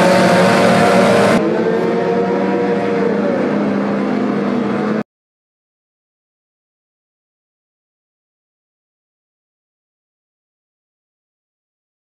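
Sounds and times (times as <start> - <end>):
outboard engines revving hard: 0.0 - 5.0
powerboats running past: 0.0 - 5.0.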